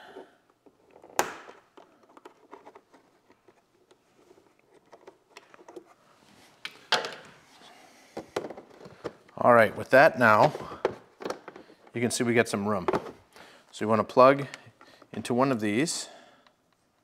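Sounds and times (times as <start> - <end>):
small taps and handling noise: 0.4 - 7.4, 8.1 - 13.5
plastic fasteners popping: 0.5 - 5.9, 10.6 - 11.9.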